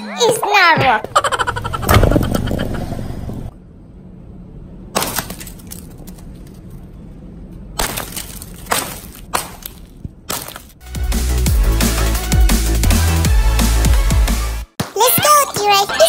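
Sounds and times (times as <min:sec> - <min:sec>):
hammer smashing glassy ball: 0:07.8 - 0:10.8
electronic music with heavy beat: 0:10.9 - 0:16.0.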